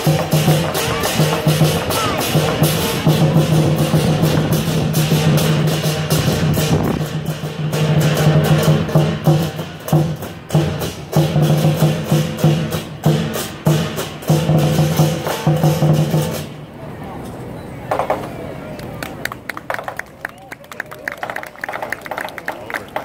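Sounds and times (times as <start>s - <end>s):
drum beating fast rhythm: 0.0s - 16.5s
cymbals crashing: 0.0s - 16.6s.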